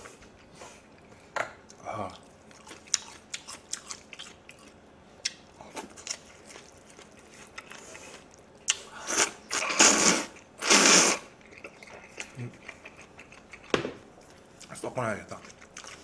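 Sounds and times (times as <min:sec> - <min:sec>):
noodles being slurped: 0:09.0 - 0:12.4.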